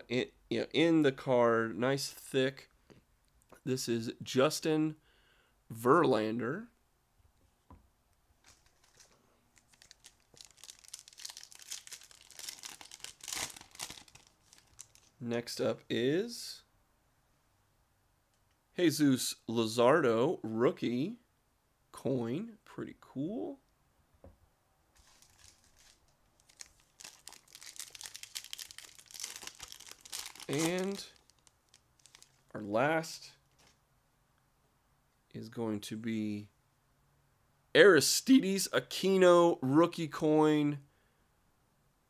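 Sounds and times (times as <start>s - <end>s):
plastic wrapper crinkling: 8.4s - 15.2s, 25.0s - 32.5s.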